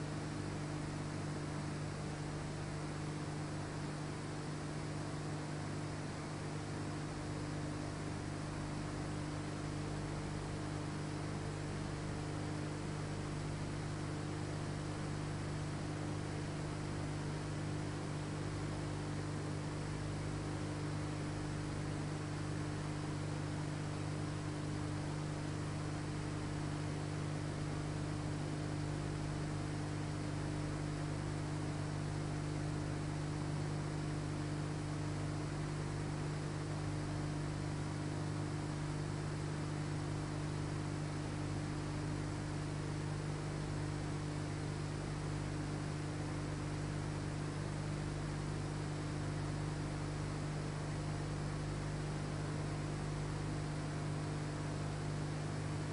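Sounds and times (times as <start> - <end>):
electrical mains hum: 0.0 - 55.9.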